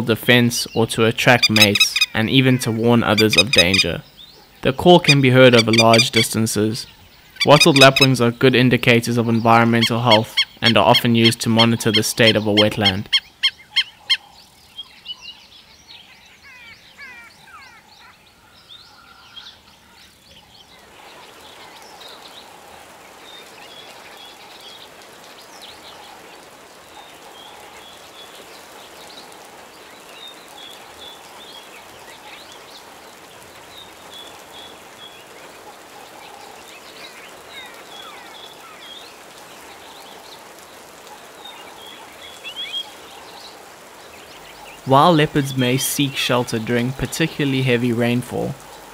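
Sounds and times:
high bird notes: 0:01.3 - 0:04.0, 0:04.6 - 0:08.4, 0:09.2 - 0:13.9
lapwing calling: 0:01.3 - 0:08.2, 0:09.2 - 0:14.4
outdoor hiss: 0:18.3 - 0:48.9.

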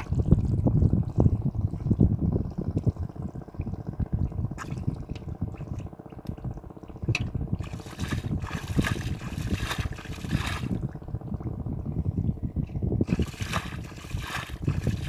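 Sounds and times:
steady low rumble: 0:00.0 - 0:15.0
muddy water splashing: 0:06.9 - 0:10.9, 0:13.0 - 0:15.0.

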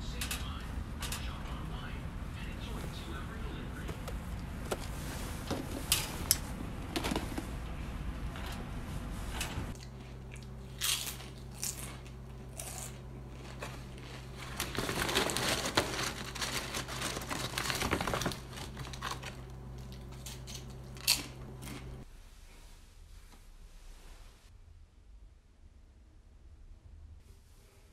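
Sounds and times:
steady low hum: 0:00.0 - 0:27.9
plastic packaging crinkling: 0:10.8 - 0:22.0.

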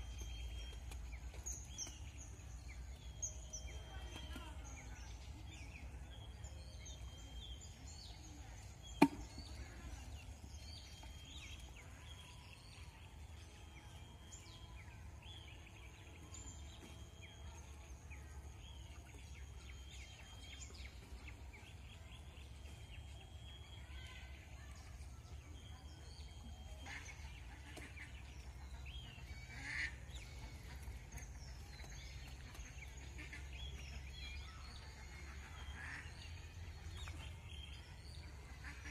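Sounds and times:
birds calling: 0:25.8 - 0:38.9.

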